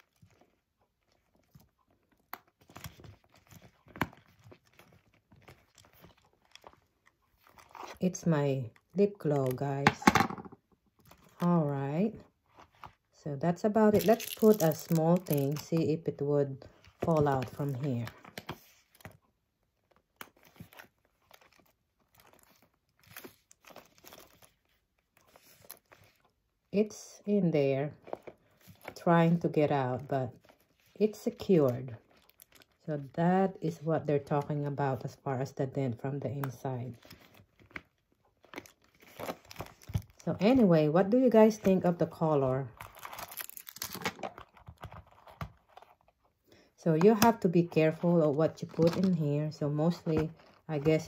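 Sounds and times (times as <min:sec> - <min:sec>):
handbag handling clicks and rustles: 0:13.8 - 0:16.0, 0:42.8 - 0:46.2, 0:47.0 - 0:51.0
leather bag rustling: 0:13.9 - 0:15.6.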